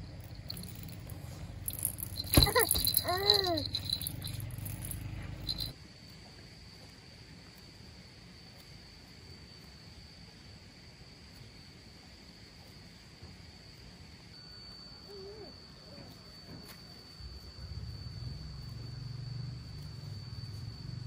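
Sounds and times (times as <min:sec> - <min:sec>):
low hum: 0:00.0 - 0:05.7
rattling: 0:00.0 - 0:05.7
high insect drone: 0:00.0 - 0:21.0.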